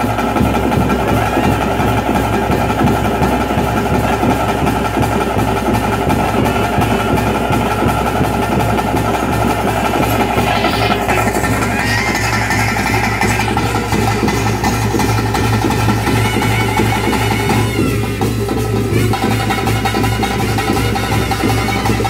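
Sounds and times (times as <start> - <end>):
fast continuous drumming: 0.0 - 22.0
steady held tone: 6.3 - 19.2.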